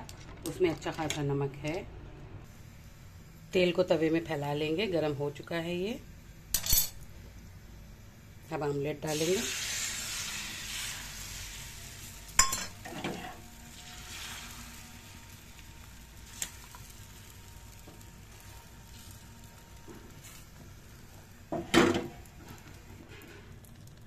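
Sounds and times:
egg sizzling in hot oil: 0:08.5 - 0:24.0.

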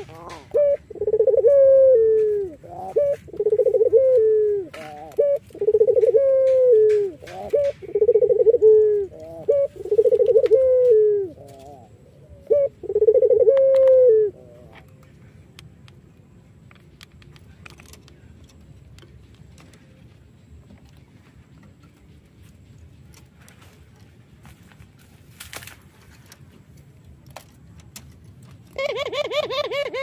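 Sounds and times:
dove cooing: 0:00.0 - 0:15.0, 0:28.7 - 0:30.0.

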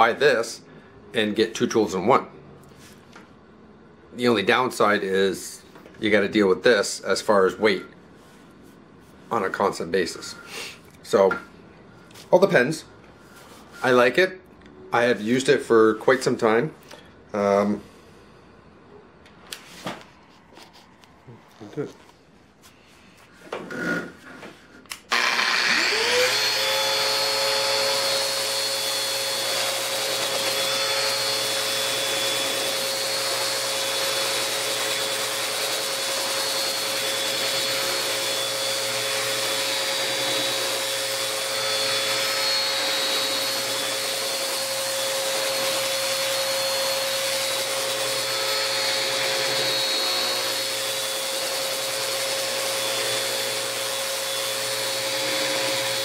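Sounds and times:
orbital sander sanding wood: 0:25.1 - 0:56.0.

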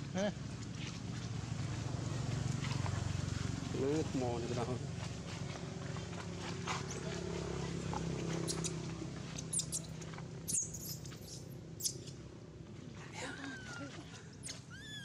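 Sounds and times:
baby monkey squeaking: 0:08.4 - 0:08.8, 0:09.4 - 0:12.2, 0:14.4 - 0:15.0.

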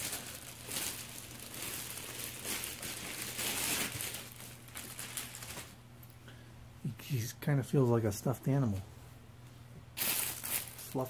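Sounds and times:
plastic bag crinkling: 0:00.0 - 0:05.8, 0:10.0 - 0:11.0.

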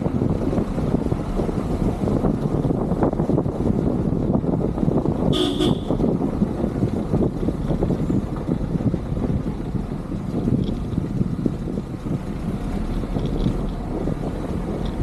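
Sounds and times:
car engine and road rumble: 0:00.0 - 0:15.0
car horn toot: 0:05.3 - 0:06.0.

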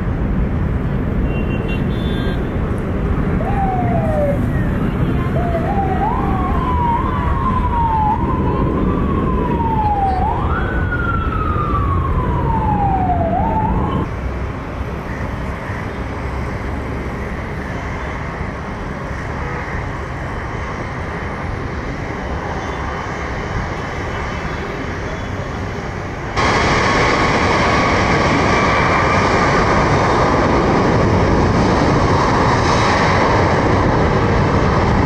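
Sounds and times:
jet engines roaring: 0:00.0 - 0:35.0
siren wailing: 0:02.9 - 0:14.1.

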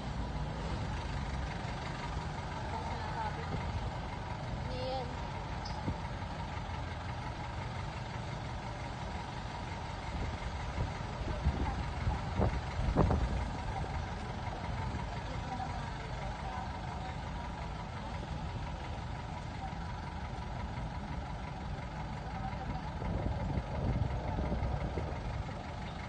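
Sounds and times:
vehicle engine and road noise: 0:00.0 - 0:26.0.

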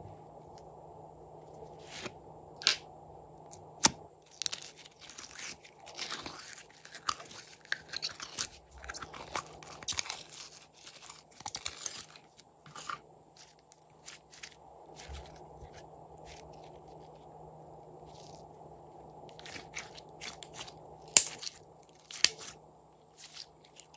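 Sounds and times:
sticky slime crackling: 0:03.6 - 0:17.2, 0:19.3 - 0:23.9.

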